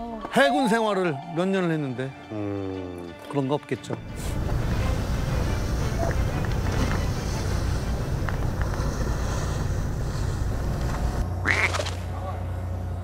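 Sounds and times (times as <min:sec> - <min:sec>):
fishing boat engine rumble: 0:04.1 - 0:13.0.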